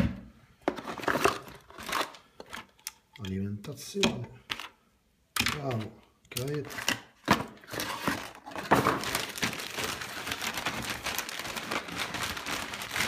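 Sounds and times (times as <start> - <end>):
plastic and cardboard crinkling: 0.6 - 2.8, 5.6 - 13.0.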